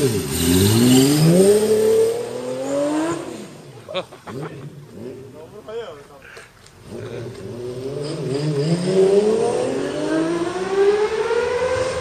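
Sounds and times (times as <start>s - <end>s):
motorcycle engine accelerating: 0.0s - 3.6s, 6.8s - 12.0s.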